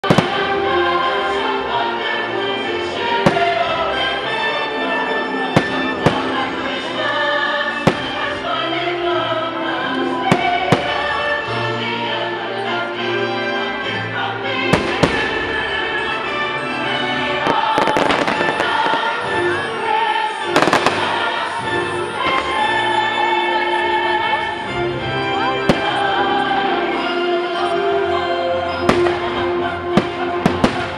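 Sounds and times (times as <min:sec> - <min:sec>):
fireworks bangs: 0:00.0 - 0:00.8, 0:02.8 - 0:03.9, 0:05.4 - 0:06.8, 0:07.8 - 0:08.5, 0:14.7 - 0:15.6, 0:17.4 - 0:19.8, 0:20.5 - 0:22.7, 0:28.9 - 0:30.9
orchestral and choral music over speakers: 0:00.0 - 0:30.9.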